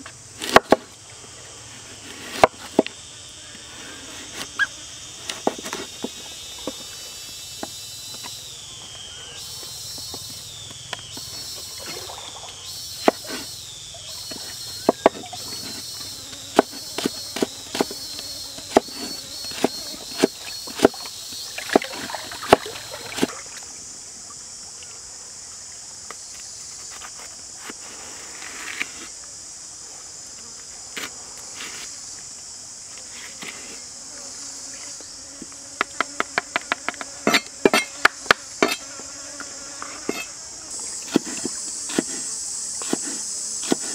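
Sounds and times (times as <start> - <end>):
insects buzzing: 0.0 - 43.9
knife chopping on wooden board: 18.6 - 21.0, 35.8 - 38.8, 41.1 - 42.2, 42.8 - 43.9.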